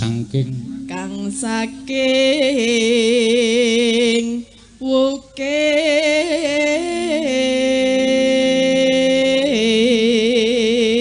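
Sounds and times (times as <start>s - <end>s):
woman singing into a microphone: 0.9s - 11.0s.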